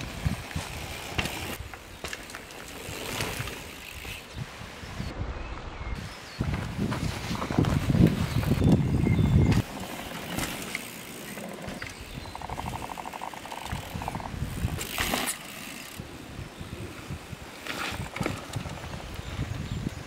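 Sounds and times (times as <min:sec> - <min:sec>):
bike tyres rolling over dirt: 0:00.0 - 0:05.1, 0:06.0 - 0:20.0
bike freewheel clicking: 0:09.6 - 0:16.0.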